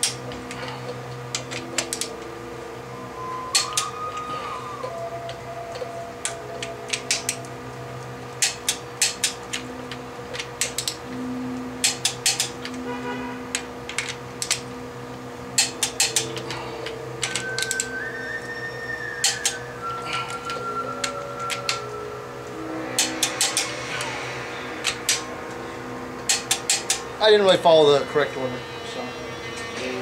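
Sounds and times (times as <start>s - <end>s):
hand ratchet clicking: 6.2s - 7.4s, 8.4s - 11.0s, 11.8s - 12.8s, 13.5s - 14.6s, 15.6s - 17.9s, 26.3s - 27.0s.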